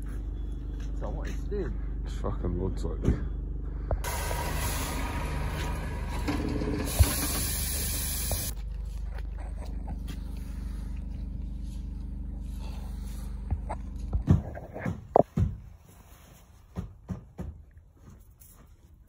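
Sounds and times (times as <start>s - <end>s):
diesel engine running: 0.0s - 14.8s
loud steady hiss: 4.1s - 6.1s, 6.8s - 8.6s.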